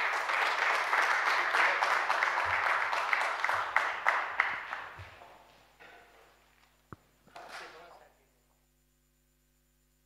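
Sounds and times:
audience applauding: 0.0s - 5.6s.

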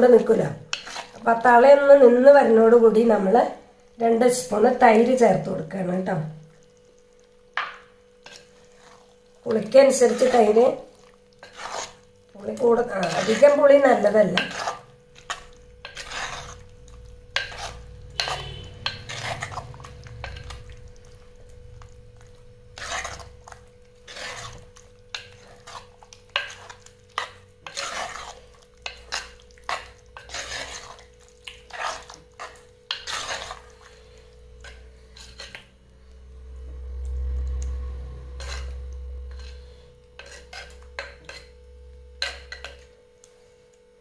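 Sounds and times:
faint steady hum: 0.0s - 44.0s
spoon scraping earthenware pot: 0.1s - 1.4s, 7.0s - 21.2s, 21.8s - 35.8s, 38.3s - 43.0s
low rumble: 36.3s - 39.3s.

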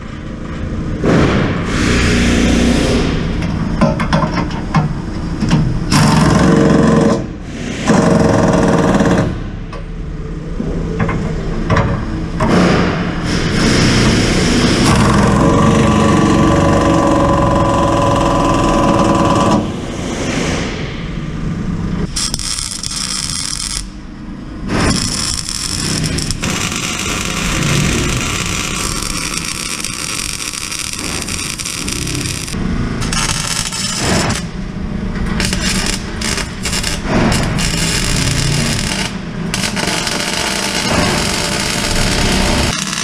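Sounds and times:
power tools on steel: 24.9s - 34.5s, 35.4s - 43.0s.

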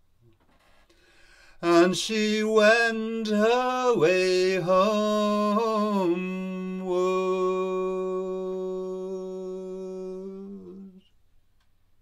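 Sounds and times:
man singing a long note: 1.6s - 11.0s.

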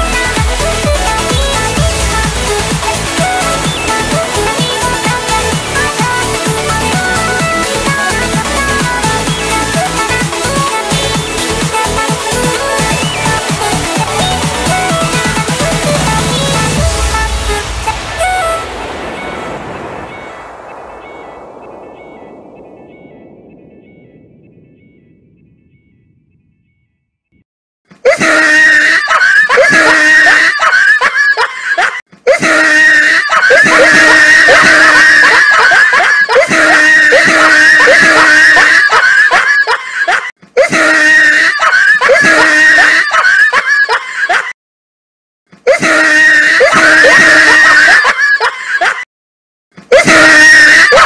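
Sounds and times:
loud distorted scream-like sound: 32.4s - 39.4s, 45.8s - 48.1s, 49.9s - 51.0s.

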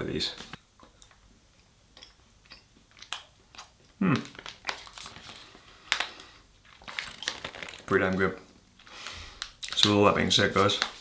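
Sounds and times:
snack bag crinkling: 2.9s - 11.0s.

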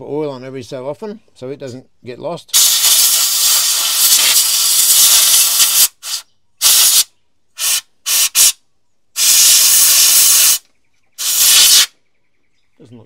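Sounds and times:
compressed air blasts hissing: 2.5s - 8.6s, 9.2s - 10.6s, 11.2s - 11.9s.

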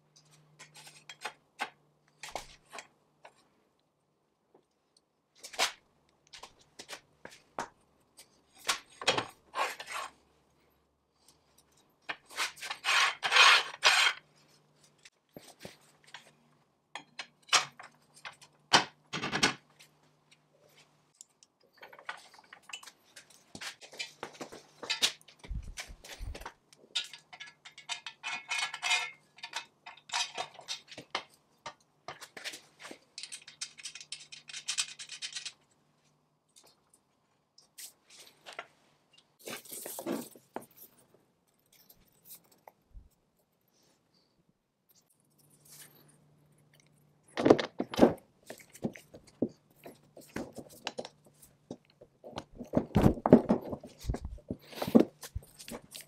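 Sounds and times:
metal scraping and rubbing: 12.3s - 14.3s
metal parts clinking: 33.2s - 35.6s.

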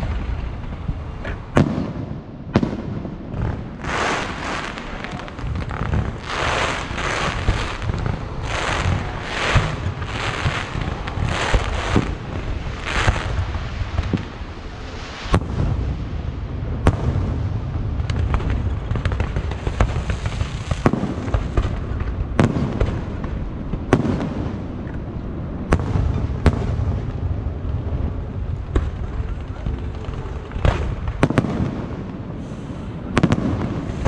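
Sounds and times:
fireworks rumble and crackle: 0.0s - 34.0s
fireworks hissing: 3.4s - 17.3s.

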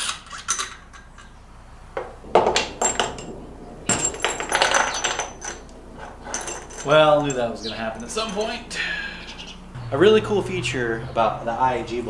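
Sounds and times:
loud metal clank: 2.0s - 8.6s.

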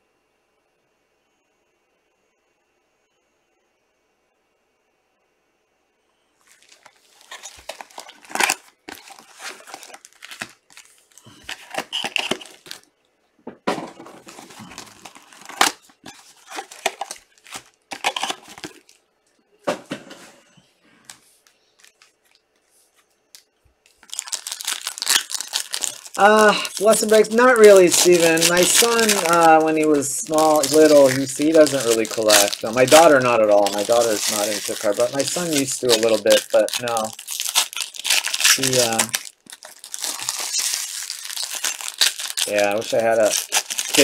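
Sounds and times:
foil packs tearing and crinkling: 6.4s - 12.9s, 14.0s - 19.0s, 23.9s - 44.0s.

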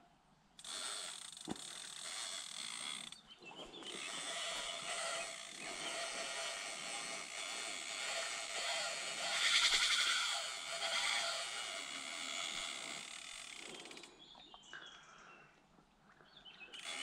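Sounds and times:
fishing reel ratcheting: 0.6s - 3.2s, 3.9s - 14.1s, 16.8s - 17.0s.

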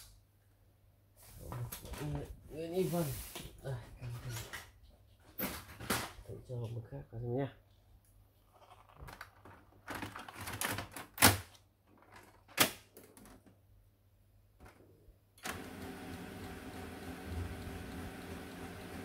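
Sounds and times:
printer mechanism humming: 15.4s - 19.0s.

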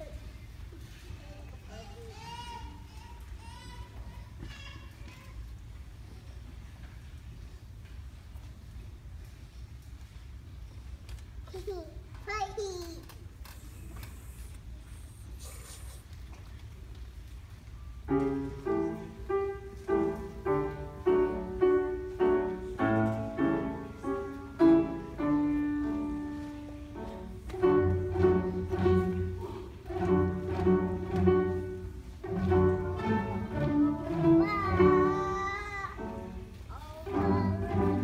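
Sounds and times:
string ensemble playing: 18.1s - 38.0s.

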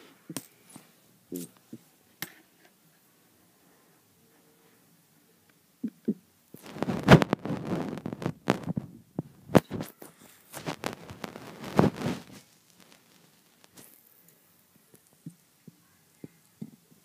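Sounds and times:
handling noise rustling: 6.6s - 14.4s.

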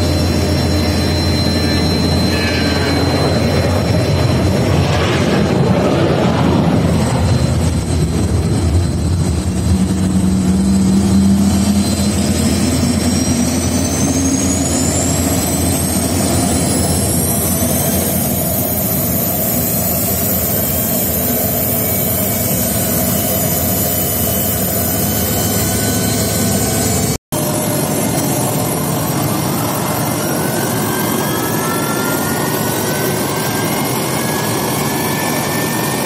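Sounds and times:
jet engine whine: 0.0s - 36.0s
low rumble: 1.8s - 14.9s.

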